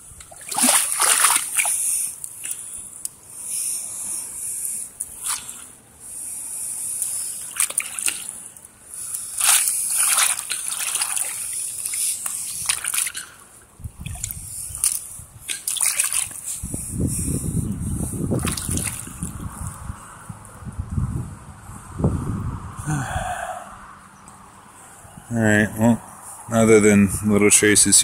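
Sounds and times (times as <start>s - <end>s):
boots wading through water: 0.2s - 2.6s, 7.4s - 8.4s, 9.4s - 16.6s, 18.4s - 19.2s.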